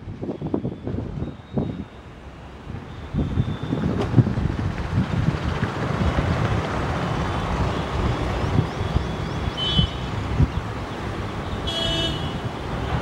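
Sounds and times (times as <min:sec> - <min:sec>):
wind buffeting microphone: 0:00.0 - 0:13.0
high train horn toot: 0:11.6 - 0:12.5.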